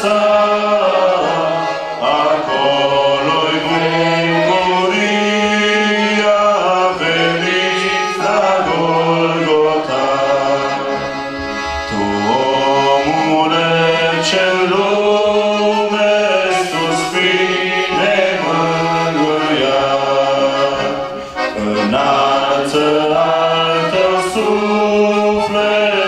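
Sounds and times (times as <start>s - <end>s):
instrumental accompaniment: 0.0s - 26.0s
man singing long held notes: 11.9s - 26.0s.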